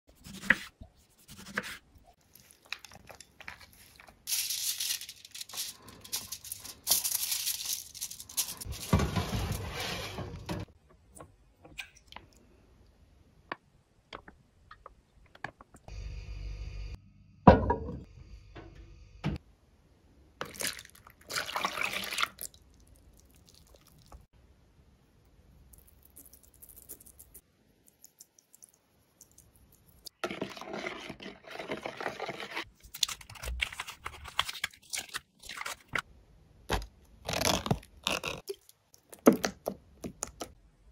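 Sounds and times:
packaging rustling and tearing: 2.3s - 9.7s
object set down with a knock: 17.5s - 18.0s.

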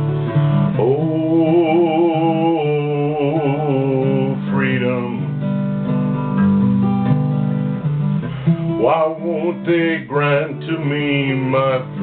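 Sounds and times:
acoustic guitar accompaniment: 0.0s - 12.0s.

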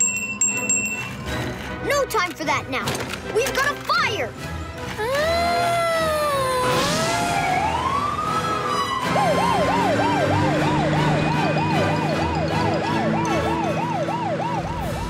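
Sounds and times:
fire engine siren wailing: 5.5s - 15.0s.

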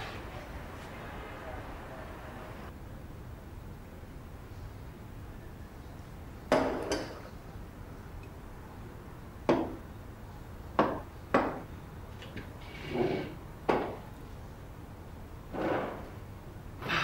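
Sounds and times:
chairs scraping: 12.6s - 13.4s.

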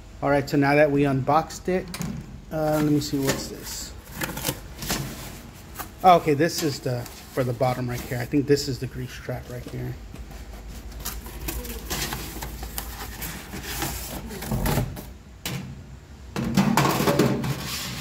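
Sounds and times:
cardboard packaging handled: 2.6s - 15.1s.

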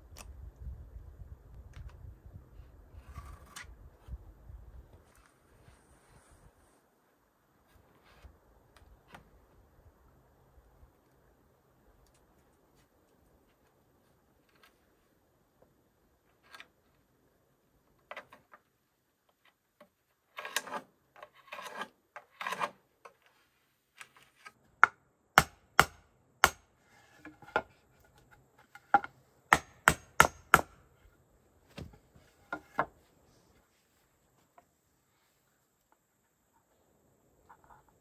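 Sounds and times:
hammer striking wooden boards: 24.8s - 26.7s, 29.5s - 30.8s.

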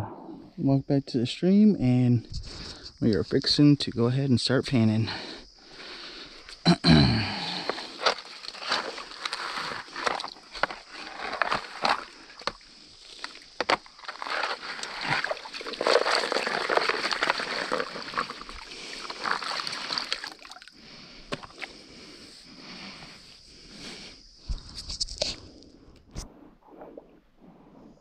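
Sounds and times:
water splashing and sloshing: 7.7s - 21.9s.

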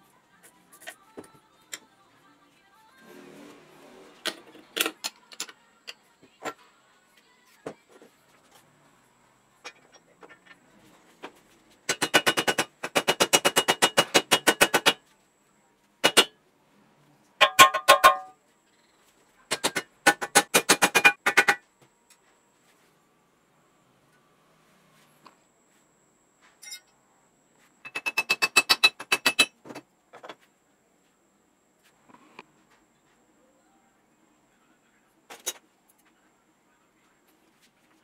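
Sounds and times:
mallet tapping on metal tube: 17.4s - 18.4s.

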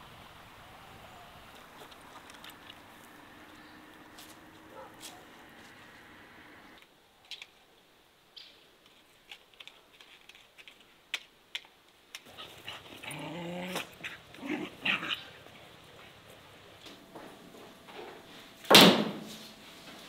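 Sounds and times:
small dogs growling and whining: 12.3s - 15.8s.

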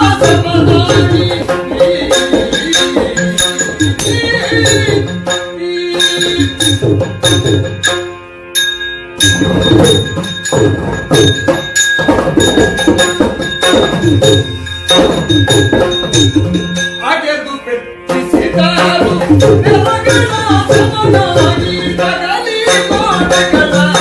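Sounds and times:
drum strokes: 0.0s - 17.4s
hand cymbals ringing: 0.0s - 18.0s.

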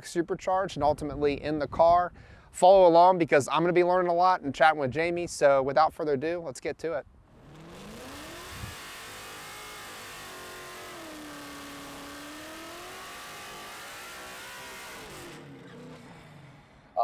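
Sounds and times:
race car engine revving: 7.3s - 17.0s.

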